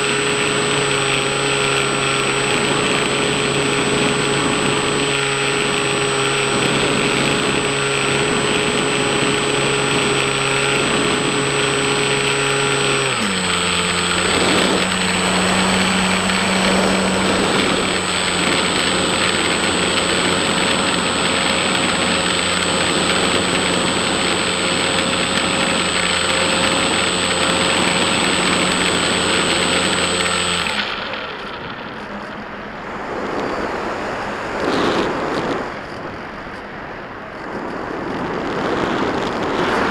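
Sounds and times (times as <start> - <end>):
electric motor and propeller hum: 0.0 - 36.7, 37.3 - 39.9.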